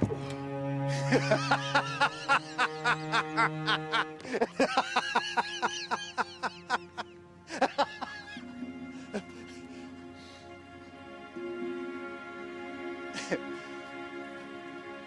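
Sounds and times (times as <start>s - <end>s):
low sustained string music: 0.0s - 15.0s
man laughing mockingly: 1.0s - 8.4s.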